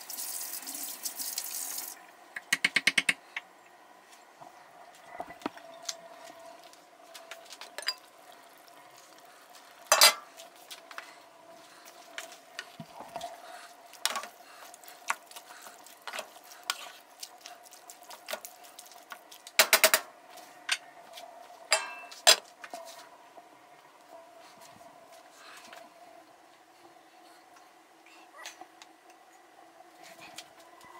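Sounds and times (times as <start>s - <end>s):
faint steady hum: 0.0s - 30.9s
clinks and knocks on pot: 21.7s - 22.4s.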